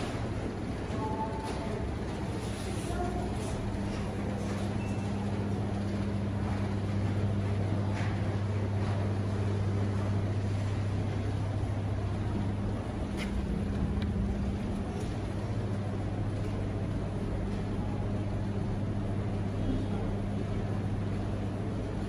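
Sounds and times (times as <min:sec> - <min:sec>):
low machinery hum: 0:00.0 - 0:22.0
rumbling background: 0:05.4 - 0:22.0.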